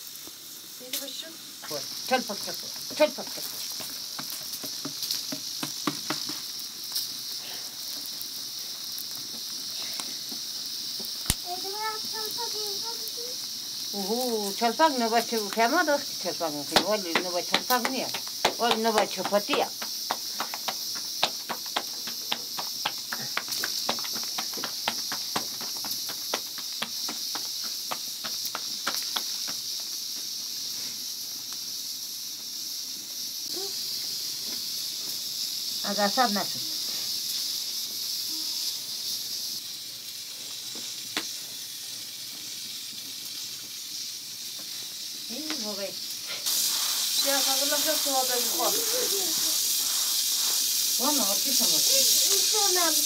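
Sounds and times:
steady high hiss: 0:00.0 - 0:53.0
dough slapped between palms: 0:04.6 - 0:06.4, 0:16.7 - 0:29.7.

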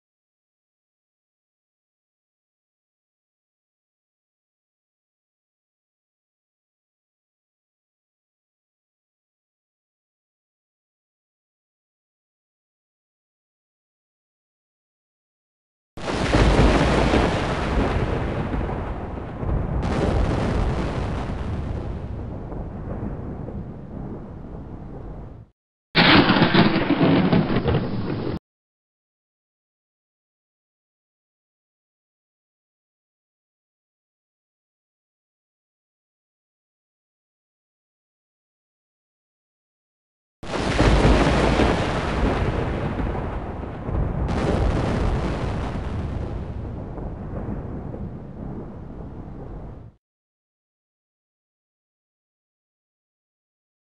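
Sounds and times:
thunder rumbling: 0:16.0 - 0:28.4, 0:40.5 - 0:50.0.

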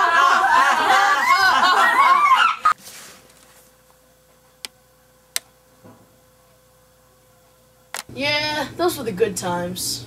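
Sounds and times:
boys shrieking laughter: 0:00.0 - 0:02.8
faint steady hum: 0:00.0 - 0:10.0.

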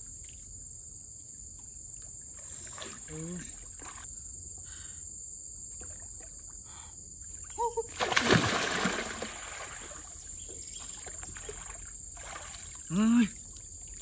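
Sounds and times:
person splashing into water: 0:07.9 - 0:10.2, 0:11.0 - 0:13.0.

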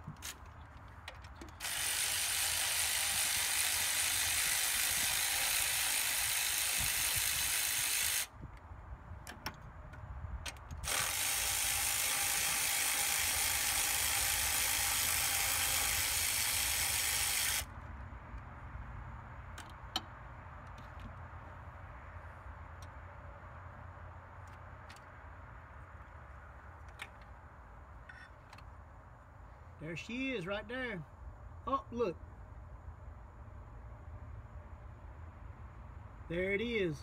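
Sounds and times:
power ratchet running: 0:01.5 - 0:08.3, 0:10.8 - 0:17.7.

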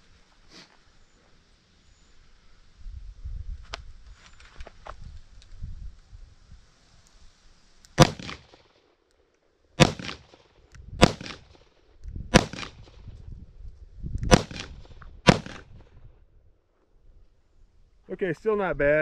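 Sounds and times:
revolver gunshots: 0:08.0 - 0:08.6, 0:09.8 - 0:10.4, 0:11.0 - 0:11.6, 0:12.3 - 0:13.0, 0:14.3 - 0:15.8.

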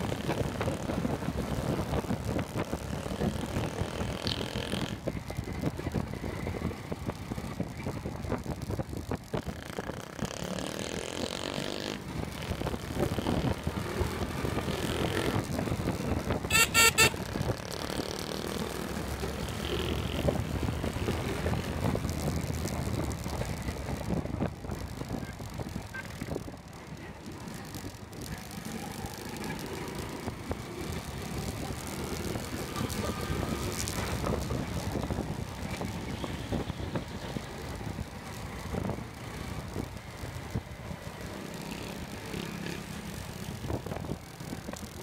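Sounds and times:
street traffic engines and rumble: 0:00.0 - 0:45.0
vehicle horn honking: 0:16.4 - 0:17.3.

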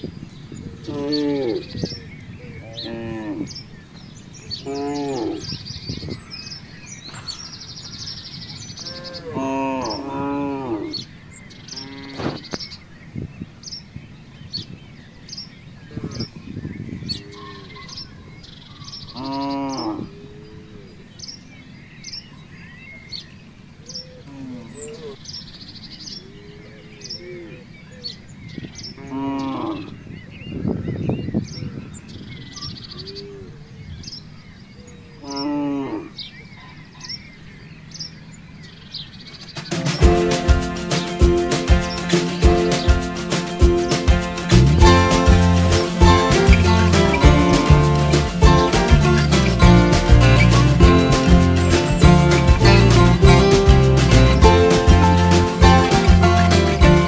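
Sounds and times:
small birds chirping: 0:00.0 - 0:57.0
cattle mooing: 0:08.8 - 0:11.0.

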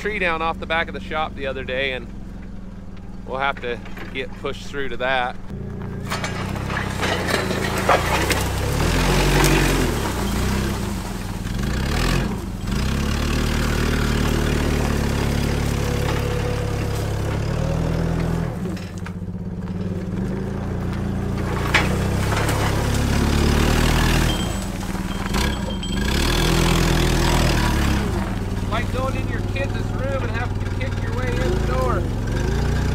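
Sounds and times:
forklift engine running under load: 0:00.0 - 0:32.9
branches cracking: 0:05.5 - 0:32.9.

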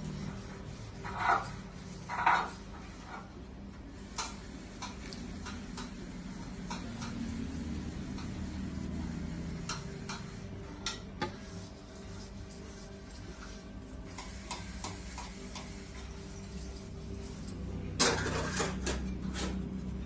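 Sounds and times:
metal spoon scraping rice in a pot: 0:00.8 - 0:03.4, 0:18.0 - 0:20.0.

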